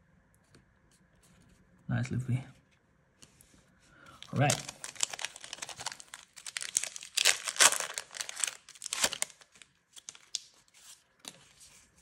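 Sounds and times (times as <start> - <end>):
foil wrapper crinkling: 4.1 - 11.1.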